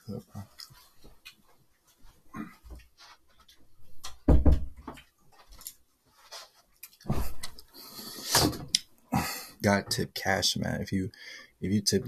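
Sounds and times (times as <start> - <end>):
knocks and rustling of chair: 2.6 - 5.6, 6.3 - 7.6
door shutting with thud: 4.2 - 4.8.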